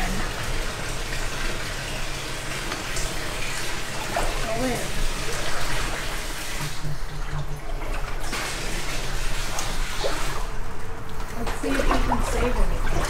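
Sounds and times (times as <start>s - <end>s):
water sloshing around wading legs: 3.4s - 13.0s.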